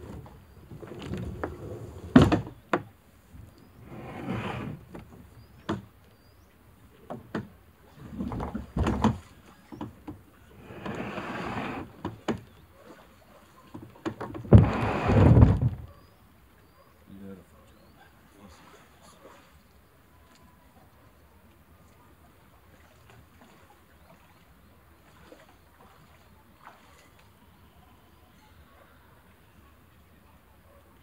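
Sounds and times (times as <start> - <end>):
paddle swishing in water: 3.6 - 5.8, 7.8 - 16.0, 18.4 - 19.8, 21.8 - 27.4.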